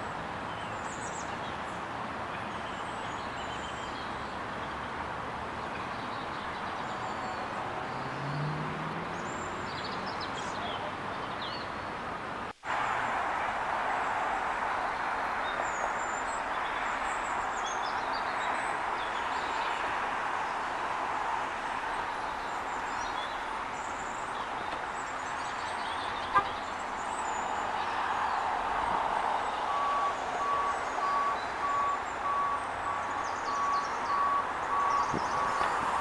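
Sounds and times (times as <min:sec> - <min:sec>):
wind through tree leaves: 0:00.0 - 0:36.0
vehicle reversing alarm beeping: 0:29.3 - 0:36.0.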